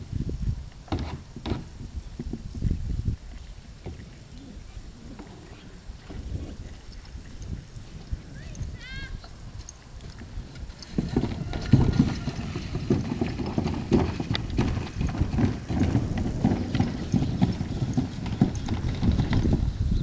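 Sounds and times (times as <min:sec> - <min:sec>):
bison footfalls: 0:10.2 - 0:19.8
plastic trash can thudding and rolling: 0:10.6 - 0:19.9.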